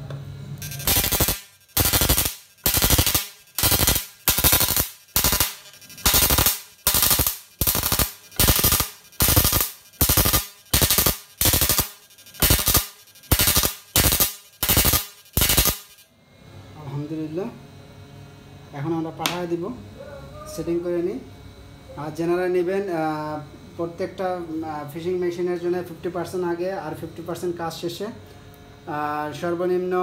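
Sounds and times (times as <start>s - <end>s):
electric sparks crackling: 0.6s - 16.0s.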